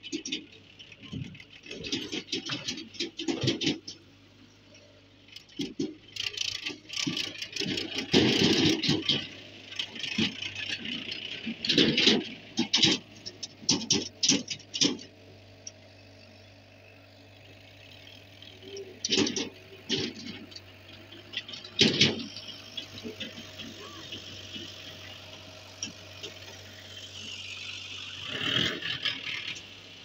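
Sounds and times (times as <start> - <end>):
rattling and clattering: 0.0 - 4.0, 5.3 - 15.2, 18.6 - 27.4
tractor engine humming: 0.0 - 30.0.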